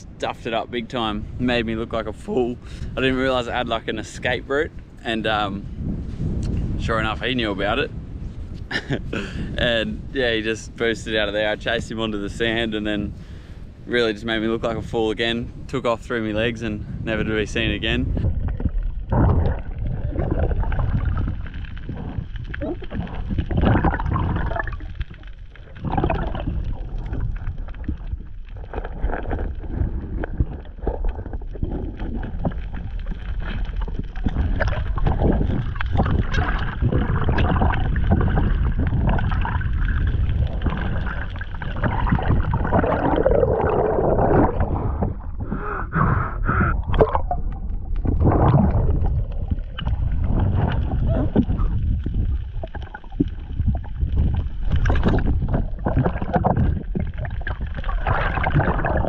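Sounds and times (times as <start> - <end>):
muffled sloshing and gurgling water: 0.0 - 59.0
low rush of underwater noise: 16.6 - 59.0.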